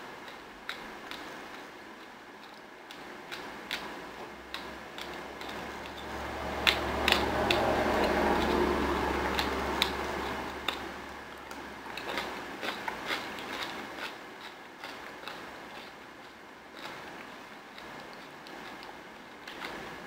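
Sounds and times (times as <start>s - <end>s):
low droning noise: 6.0s - 11.3s.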